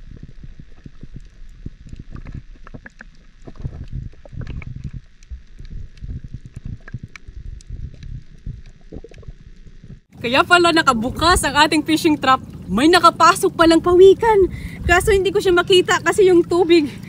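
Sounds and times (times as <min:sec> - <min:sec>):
sea water sloshing and splashing: 0:00.0 - 0:10.1, 0:11.1 - 0:14.9.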